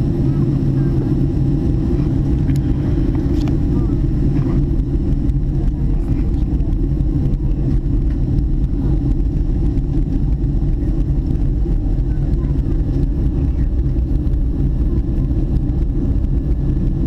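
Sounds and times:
jet airliner cabin rumble: 0.0 - 17.0.

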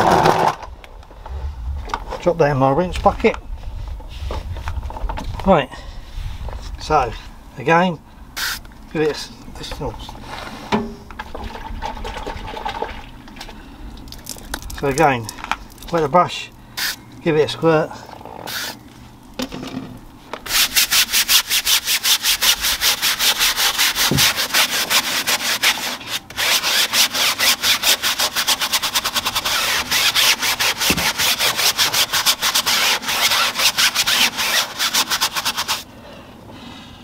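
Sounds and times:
spray bottle squirt: 8.4 - 8.6
brush scrubbing tyre: 20.4 - 35.9.

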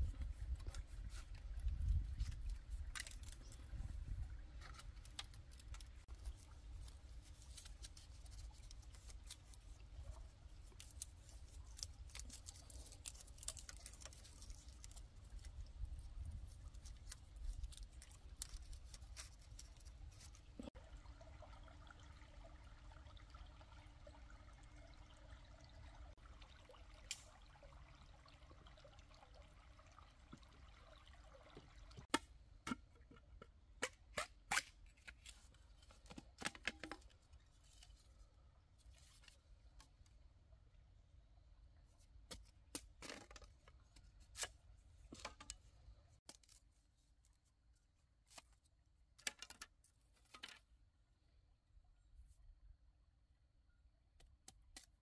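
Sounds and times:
small clicks and crackling: 0.6 - 3.6, 4.6 - 20.8.

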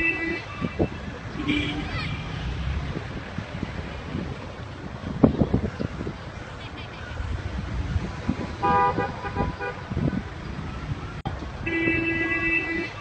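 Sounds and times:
car horn tooting: 0.0 - 2.3, 8.6 - 9.9, 11.6 - 13.0
wind rumble on microphone: 0.0 - 13.0.

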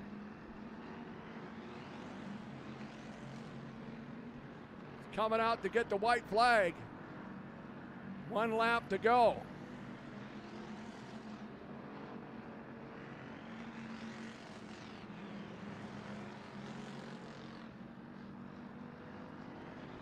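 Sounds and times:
race car engines droning: 0.1 - 20.0.

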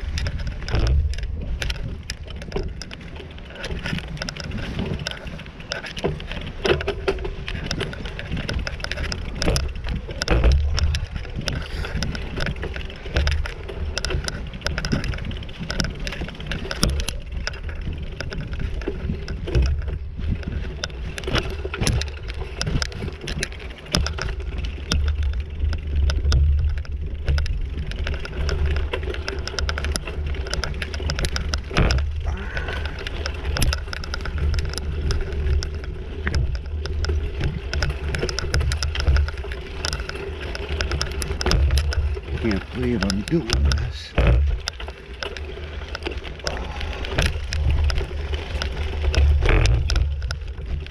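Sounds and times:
bicycle frame clattering: 0.0 - 50.9
bicycle tyres on dirt trail: 0.0 - 50.9
heavy low rumble: 32.0 - 36.9.

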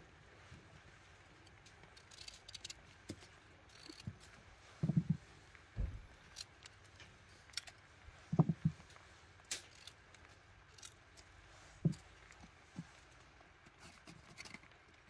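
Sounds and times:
knife clicks and scrapes: 1.4 - 5.2, 6.2 - 7.8, 9.5 - 12.9, 13.7 - 14.8.

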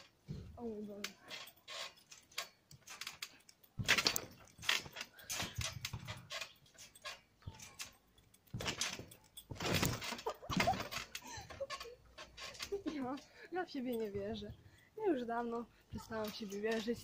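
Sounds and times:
trampoline frame rattling: 0.0 - 17.0
thuds on trampoline mat: 3.8 - 6.3, 8.5 - 11.2.

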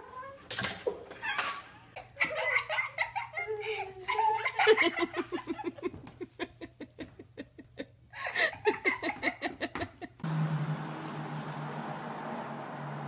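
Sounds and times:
person laughing: 1.2 - 10.2.

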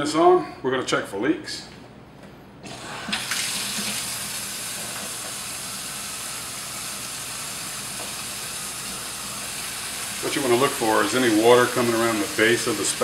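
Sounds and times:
faucet turned on: 2.7 - 13.0
water running into metal sink: 3.0 - 13.0.

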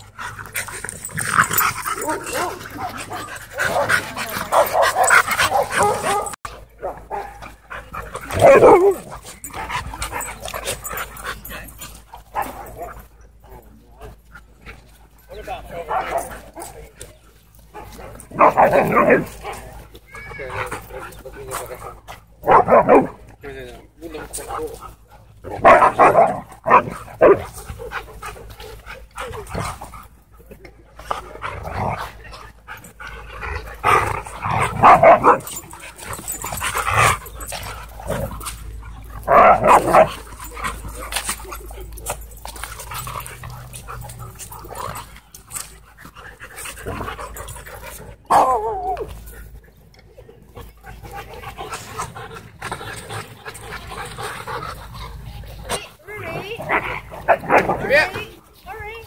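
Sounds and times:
dogs panting: 0.0 - 59.0
dogs barking: 1.4 - 9.1, 22.4 - 23.2, 25.5 - 28.0, 33.8 - 41.3.

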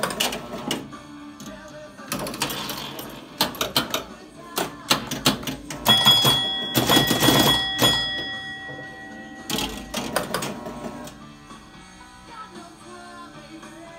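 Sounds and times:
pinball relay and switch clicks: 0.0 - 11.2
pinball bell ringing: 5.7 - 11.1.

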